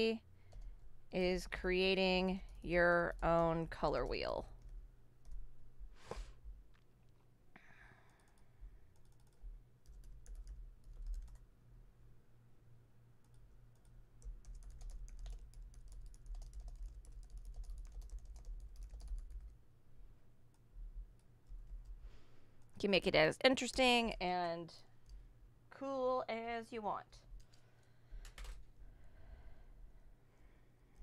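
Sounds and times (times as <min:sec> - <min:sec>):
low steady hum: 0:00.0 - 0:31.0
computer keyboard typing: 0:01.9 - 0:05.4, 0:08.1 - 0:11.5, 0:13.2 - 0:19.6, 0:28.2 - 0:28.7.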